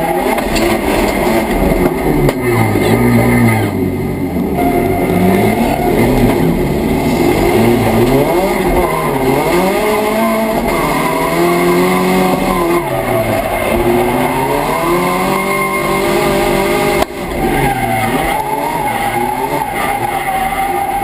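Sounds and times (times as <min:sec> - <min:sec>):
car engine revving: 0:00.0 - 0:21.0
tyres squealing: 0:07.2 - 0:21.0.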